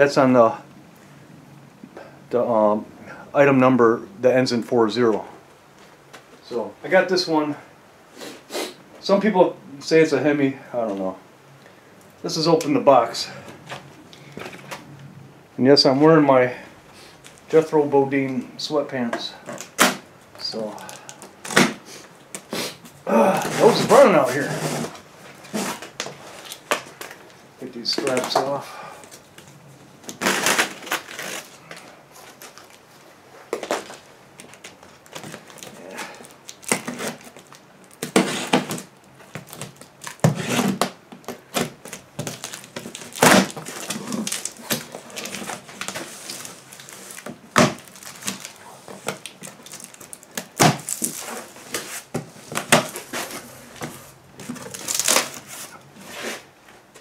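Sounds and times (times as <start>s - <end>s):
blade slitting packing tape: 30.1s - 31.5s
plastic straps pulled off: 30.1s - 32.8s, 33.6s - 56.4s.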